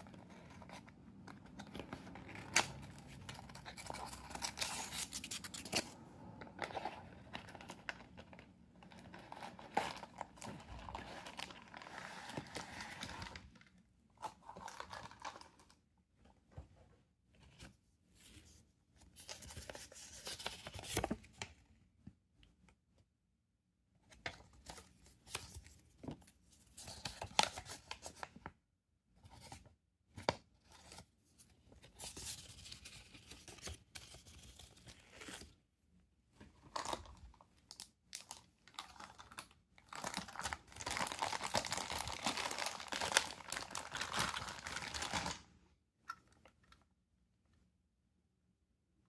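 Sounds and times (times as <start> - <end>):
plastic wrapping crinkling: 38.1 - 45.4.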